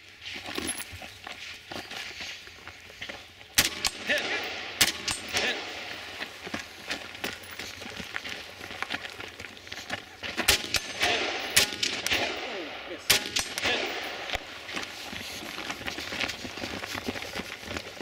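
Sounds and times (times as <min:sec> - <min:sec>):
rifle shots echoing: 0:03.6 - 0:06.2, 0:10.4 - 0:14.8.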